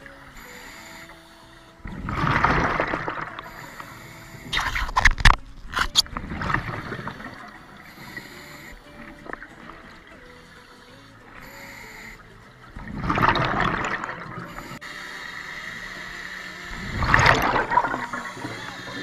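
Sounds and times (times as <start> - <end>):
gurgling rush of bubbles: 1.8 - 3.5, 6.0 - 7.6, 12.7 - 14.6, 16.7 - 19.0.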